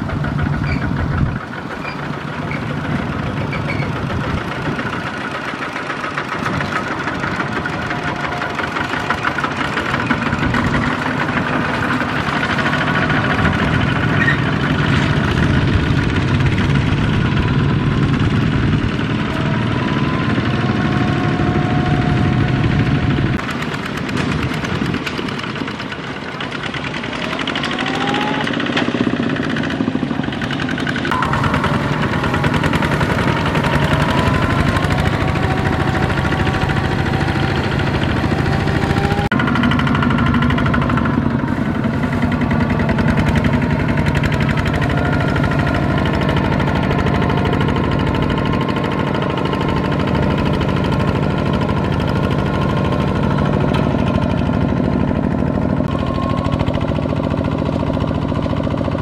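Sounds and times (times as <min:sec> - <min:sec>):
walking tractor diesel engines: 0:00.0 - 0:59.0.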